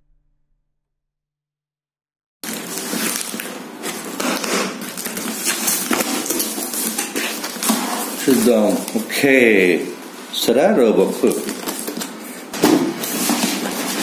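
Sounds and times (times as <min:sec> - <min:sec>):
packing tape ripping: 0:02.4 - 0:10.1, 0:11.0 - 0:14.0
cardboard flaps rustling: 0:02.4 - 0:10.2, 0:11.0 - 0:14.0.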